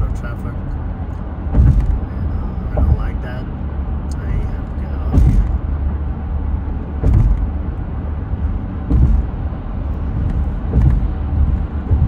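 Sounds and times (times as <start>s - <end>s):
car road noise rumble: 0.0s - 12.0s
short thumps: 1.4s - 3.2s, 5.0s - 5.7s, 6.9s - 7.7s, 8.4s - 12.0s.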